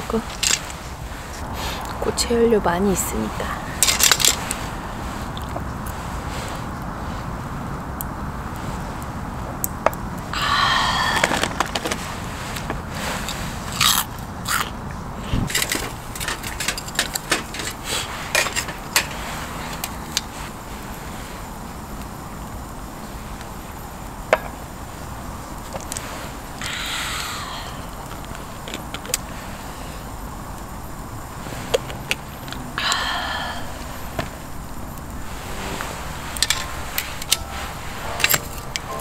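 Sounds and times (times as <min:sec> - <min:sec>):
fire burning: 0:00.0 - 0:38.9
short falling tone: 0:35.3 - 0:39.0.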